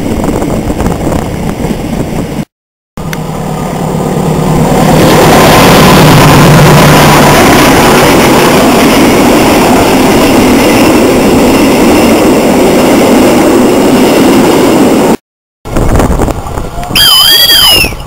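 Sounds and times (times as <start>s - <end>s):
train wheels rumbling on rail: 0.0s - 18.0s.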